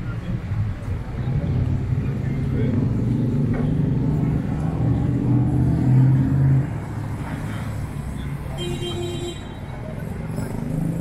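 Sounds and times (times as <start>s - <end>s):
street noise: 0.0s - 11.0s
vehicle engine humming: 0.0s - 11.0s.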